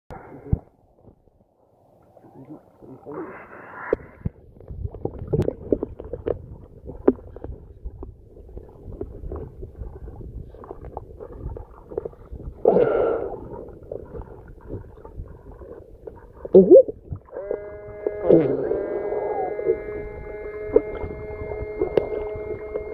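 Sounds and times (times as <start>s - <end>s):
muffled underwater water rumbling: 0.1s - 22.9s
muffled water rush: 0.1s - 22.9s
clicks and knocks underwater: 3.9s - 18.2s, 19.7s - 22.9s.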